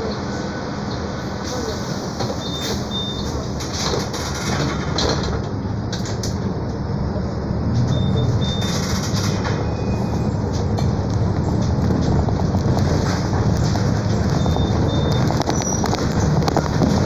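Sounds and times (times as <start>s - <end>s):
bus engine and road noise: 0.0s - 17.0s
short high beeps: 7.9s - 8.8s.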